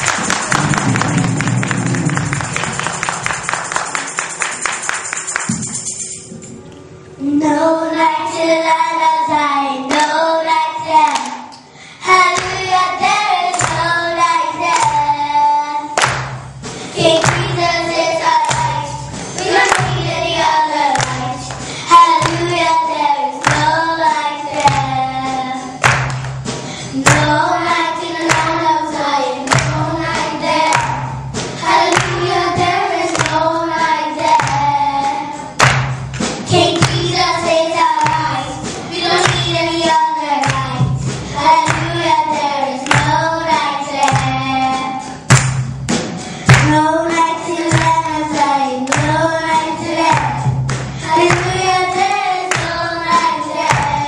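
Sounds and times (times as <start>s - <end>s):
steady beat: 0.0s - 6.5s, 16.0s - 54.0s
children singing: 17.0s - 25.8s, 27.0s - 35.6s, 36.5s - 45.1s, 46.7s - 54.0s.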